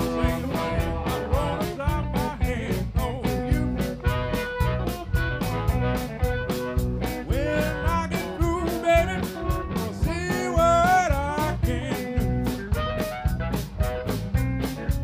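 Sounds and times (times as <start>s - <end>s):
harmonica solo: 0.0s - 2.3s, 3.0s - 14.2s
rock band playing: 0.0s - 15.0s.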